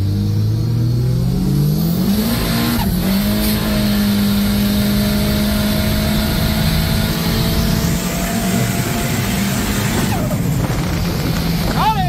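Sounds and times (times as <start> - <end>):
car engine accelerating hard: 0.0 - 12.0.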